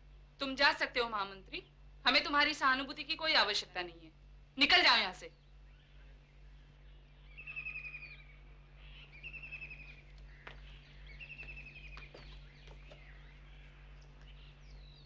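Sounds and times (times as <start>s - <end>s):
steady low hum: 0.0s - 15.0s
bird trilling: 6.8s - 15.0s.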